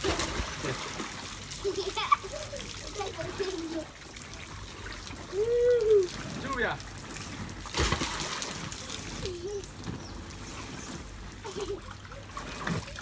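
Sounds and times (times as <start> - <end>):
water jet trickling: 0.0 - 13.0
water splashing in pool: 0.0 - 13.0.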